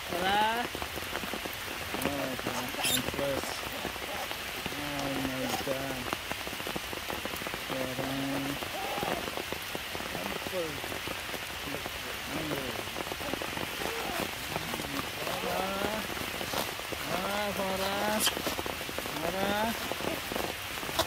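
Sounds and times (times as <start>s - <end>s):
rain on stone and foliage: 0.0s - 21.0s
voice-like cries: 8.6s - 9.4s, 13.1s - 16.0s.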